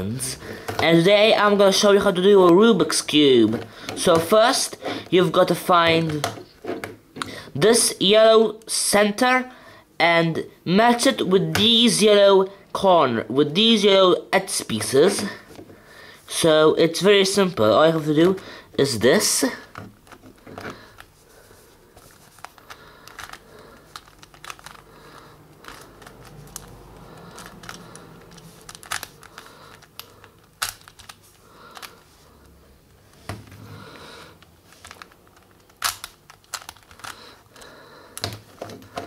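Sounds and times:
rubik's cube clicking: 0:22.4 - 0:24.9, 0:25.5 - 0:32.0, 0:34.4 - 0:37.3.

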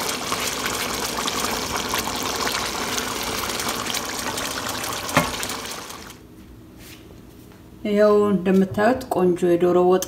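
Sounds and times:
stew bubbling in a pan: 0:00.0 - 0:06.2.

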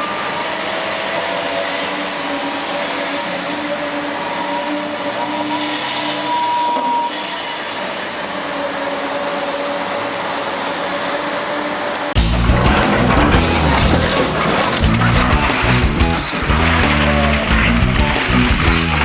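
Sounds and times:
diesel construction machinery running: 0:00.0 - 0:19.0.

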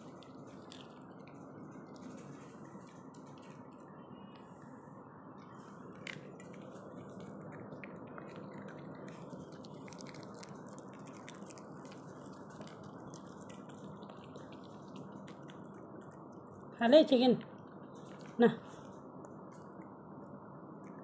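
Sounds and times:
dog chewing and licking: 0:00.0 - 0:03.6, 0:05.8 - 0:16.7.

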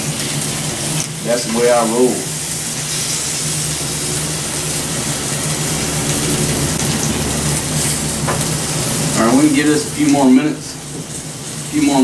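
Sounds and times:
steady low hum: 0:00.0 - 0:11.8
meat sizzling on electric grill: 0:00.0 - 0:12.0.

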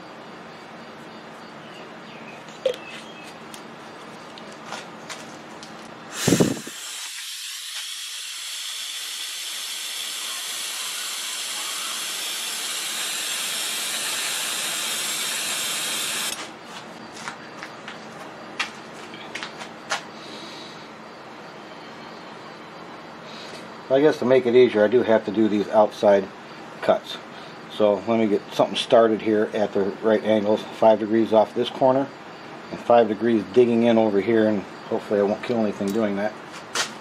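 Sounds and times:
compressed air blow gun hissing: 0:06.1 - 0:16.4.

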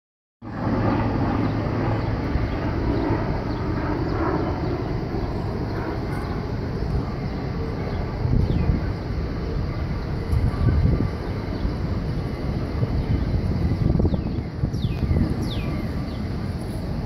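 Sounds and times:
low rumbling background noise: 0:00.5 - 0:17.0.

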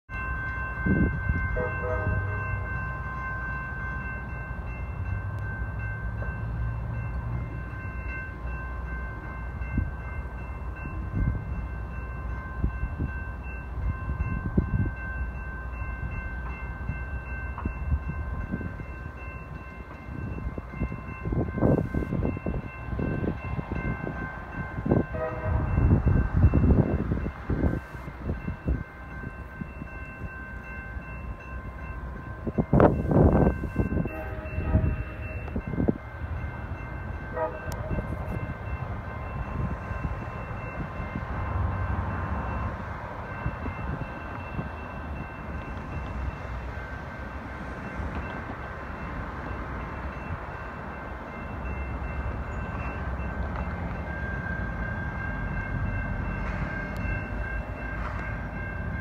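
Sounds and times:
diesel locomotive rumbling: 0:00.1 - 0:59.0
train horn: 0:01.4 - 0:02.7, 0:24.9 - 0:26.1, 0:33.8 - 0:35.8, 0:37.2 - 0:38.6.

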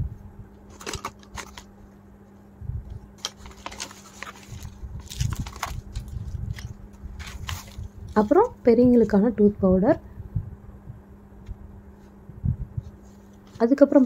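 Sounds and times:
paper and cardboard rustling: 0:00.7 - 0:02.4, 0:03.2 - 0:09.2.

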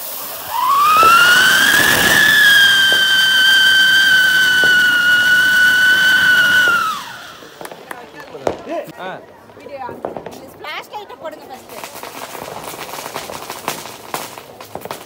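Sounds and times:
hiss of spraying sparks: 0:00.0 - 0:07.9
firework whistling: 0:00.0 - 0:08.8, 0:11.6 - 0:15.0.

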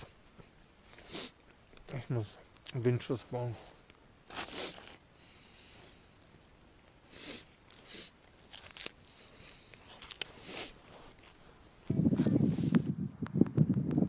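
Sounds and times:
person breathing: 0:04.4 - 0:06.2.

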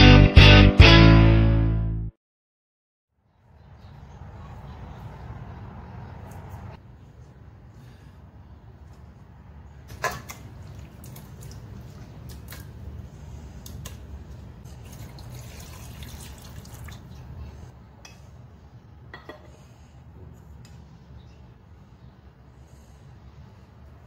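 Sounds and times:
water pouring over meat: 0:14.7 - 0:17.4.

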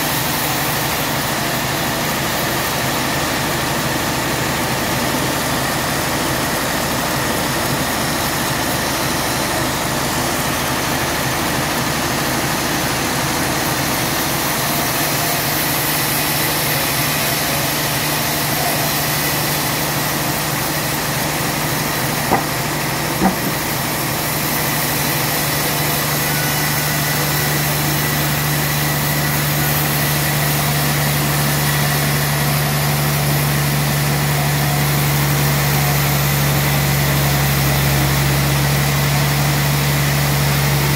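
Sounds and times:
band sawmill cutting log: 0:00.0 - 0:40.9
low motor hum: 0:20.7 - 0:24.6
sharp knocks: 0:22.3 - 0:22.6, 0:23.2 - 0:23.7.

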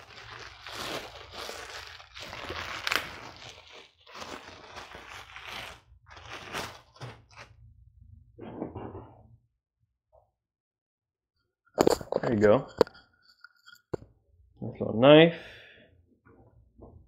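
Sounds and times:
plastic packaging crinkling: 0:00.0 - 0:07.5.

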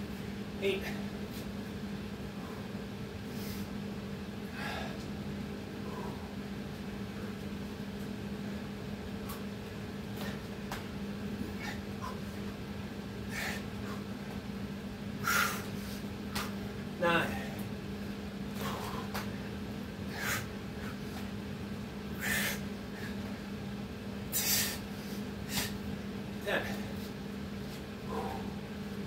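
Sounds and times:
steady low hum: 0:00.0 - 0:29.0
man panting: 0:04.5 - 0:05.1, 0:05.8 - 0:06.4, 0:10.1 - 0:10.6, 0:11.4 - 0:12.4, 0:13.2 - 0:14.3, 0:18.6 - 0:21.2, 0:22.1 - 0:23.3, 0:26.4 - 0:27.2, 0:28.0 - 0:28.8.

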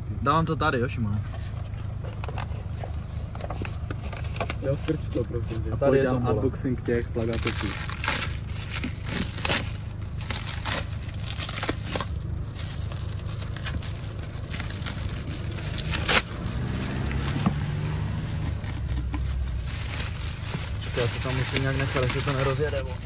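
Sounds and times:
low rumble: 0:06.8 - 0:23.0
plastic wrap crinkling: 0:07.0 - 0:23.0
plastic wrap snapping: 0:07.2 - 0:23.0.

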